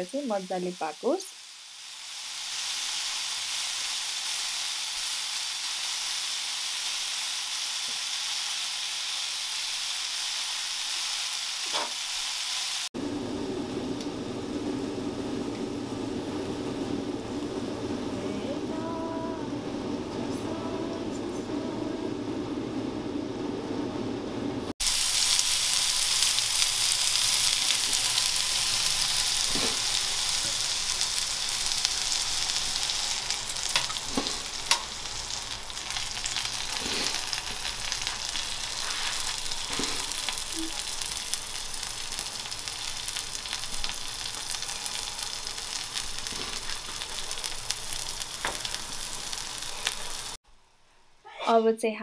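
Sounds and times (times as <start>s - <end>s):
vegetables sizzling on a griddle: 0.0s - 12.9s, 24.8s - 50.4s.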